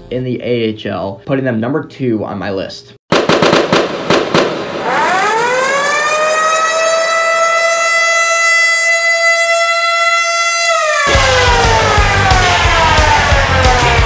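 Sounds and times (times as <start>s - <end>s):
firework bangs: 3.1s - 5.1s
siren wailing: 4.6s - 14.0s.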